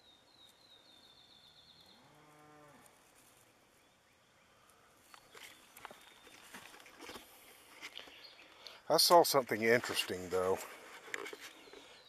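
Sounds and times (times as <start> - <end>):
handling clicks and rustles: 5.0 - 8.2, 9.0 - 11.8.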